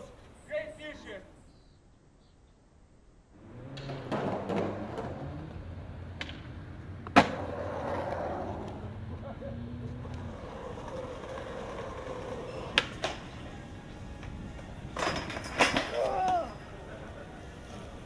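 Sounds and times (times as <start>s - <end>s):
skateboard wheels rolling on concrete: 3.3s - 18.0s
skateboard clacks: 3.6s - 8.8s, 10.0s - 16.4s.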